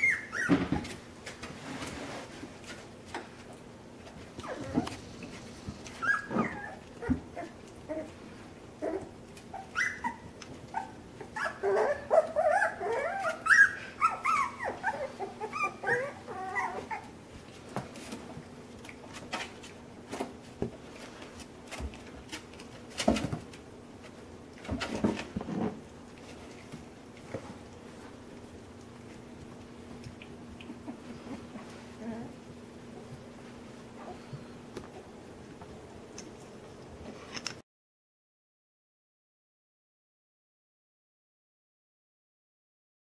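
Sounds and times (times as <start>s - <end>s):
puppies whimpering and yipping: 0.0s - 1.0s, 4.2s - 17.5s, 26.2s - 33.2s.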